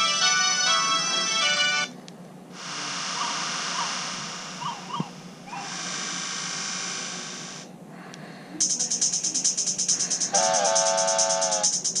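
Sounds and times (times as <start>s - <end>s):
fast rhythmic pulsing ringtone: 0.0s - 1.9s, 8.6s - 12.0s
forest ambience ringtone: 2.6s - 7.7s, 8.6s - 12.0s.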